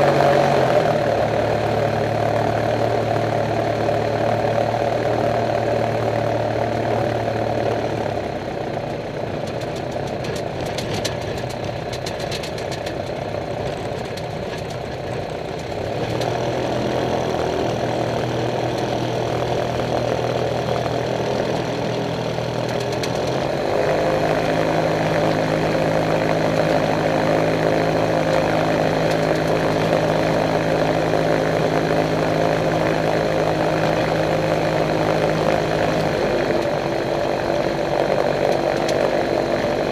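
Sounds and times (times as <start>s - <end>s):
light aircraft engine and propeller: 0.0s - 39.9s
light rattling clicks: 9.3s - 16.4s, 22.5s - 23.5s.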